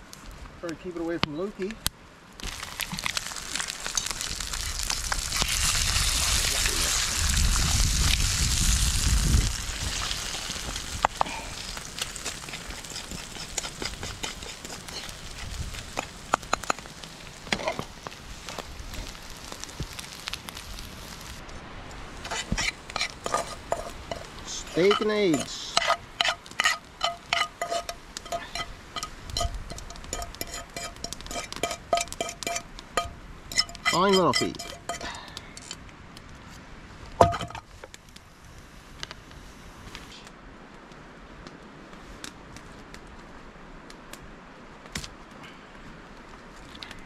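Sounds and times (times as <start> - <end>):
campfire crackling and popping: 0.0 - 47.0
metal utensil clinking in pan: 24.8 - 35.2.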